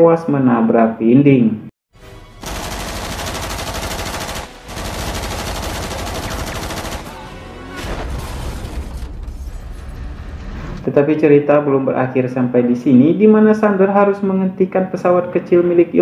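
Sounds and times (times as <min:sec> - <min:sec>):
automatic gunfire bursts: 0:02.4 - 0:07.3.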